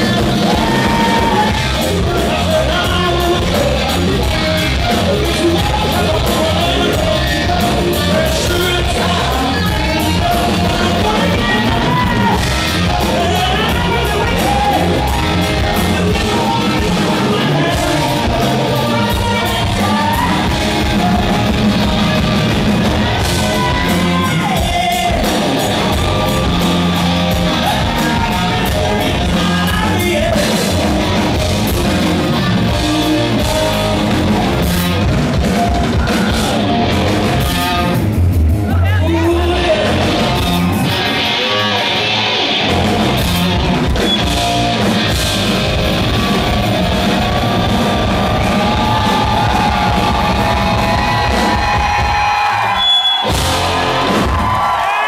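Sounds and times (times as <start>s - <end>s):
man singing lead vocal: 0.0s - 34.9s, 38.6s - 42.8s
hard rock band playing live: 0.0s - 55.0s.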